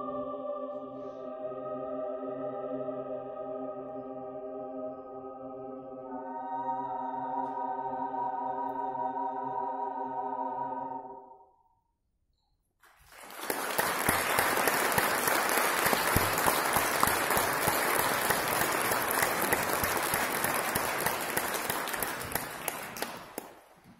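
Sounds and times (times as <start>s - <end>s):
audience applause: 12.8s - 23.8s.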